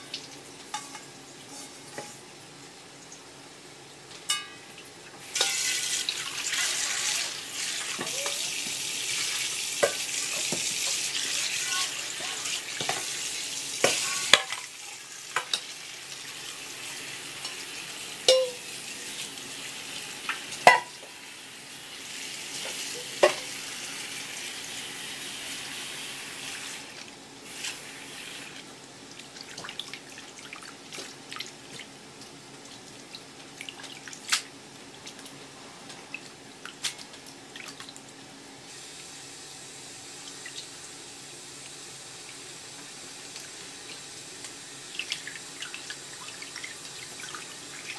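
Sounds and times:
water running into metal bowl: 0:05.2 - 0:19.2
metal bowl knocks: 0:18.3 - 0:18.6.

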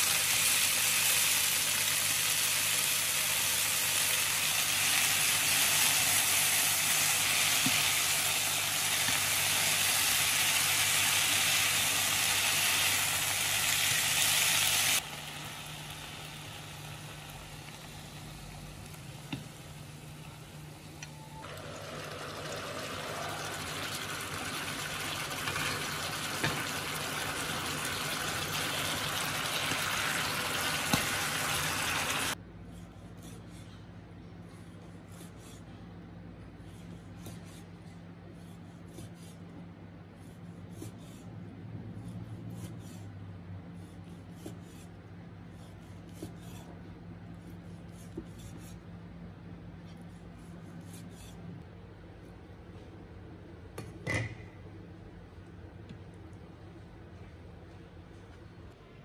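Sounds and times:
sauce sizzling in pan: 0:00.0 - 0:19.1, 0:21.5 - 0:32.4.

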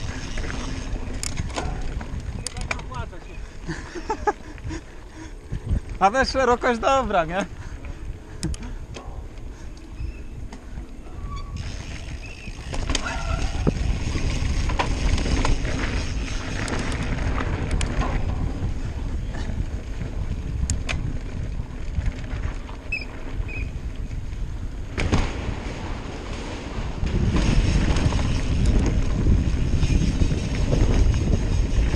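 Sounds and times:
bike tyres rumbling on grass: 0:00.0 - 0:09.2, 0:10.0 - 0:31.9
bike clicks and rattles: 0:00.0 - 0:25.2, 0:26.1 - 0:31.9
wind buffeting microphone: 0:00.0 - 0:31.9.

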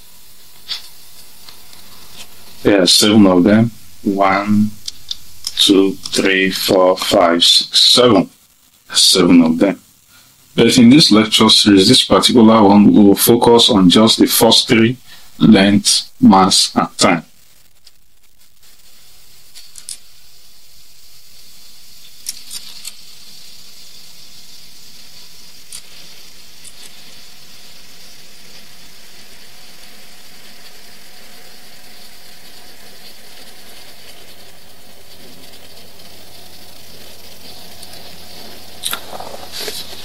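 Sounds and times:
low hum: 0:00.0 - 0:08.0, 0:22.9 - 0:40.0
steady background hiss: 0:00.0 - 0:40.0.

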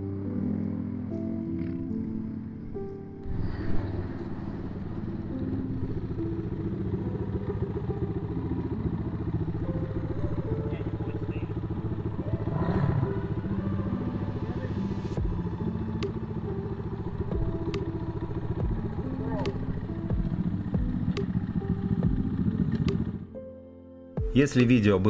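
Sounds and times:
dirt bike engine idling: 0:03.8 - 0:23.4.

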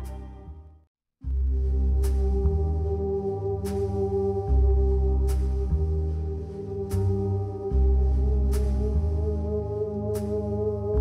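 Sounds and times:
slow dark jazz music: 0:00.0 - 0:11.0.

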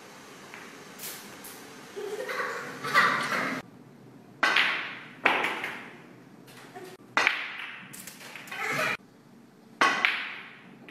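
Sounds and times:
snooker balls clacking: 0:04.4 - 0:06.0, 0:07.1 - 0:08.5, 0:09.8 - 0:10.9.

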